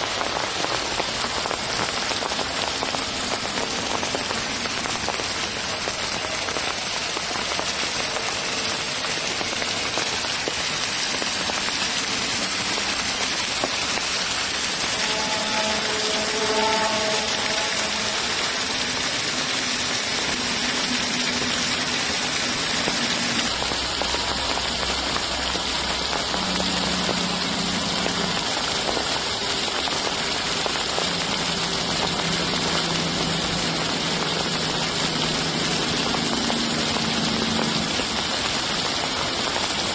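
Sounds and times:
water rushing over rocks: 0.0 - 39.9.

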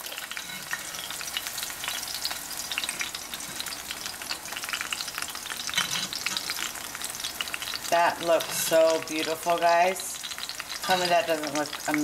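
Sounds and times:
steak sizzling in hot oil: 0.0 - 12.0.

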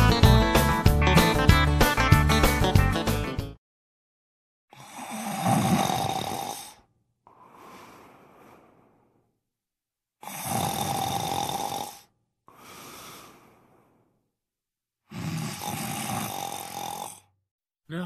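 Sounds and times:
person snoring: 4.7 - 9.4, 10.2 - 14.3, 15.0 - 18.0.

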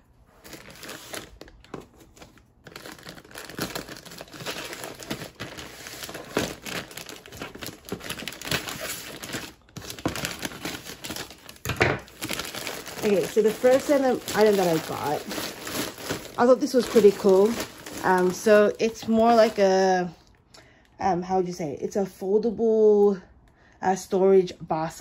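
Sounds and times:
plastic bag crinkling: 0.3 - 20.0.

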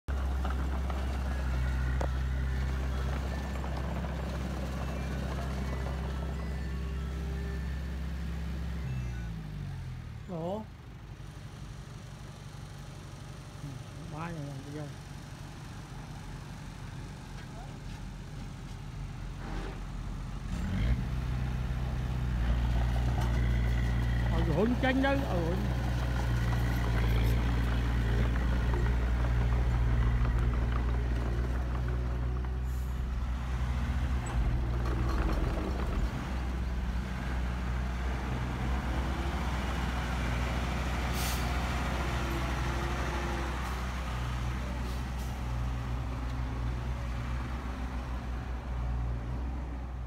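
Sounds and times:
bulldozer diesel engine running: 0.0 - 20.5, 21.1 - 50.0.

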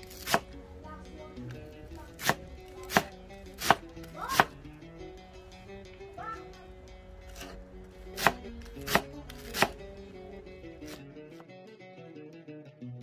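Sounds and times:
knife chopping on a board: 0.1 - 0.6, 2.1 - 4.6, 7.3 - 9.8.

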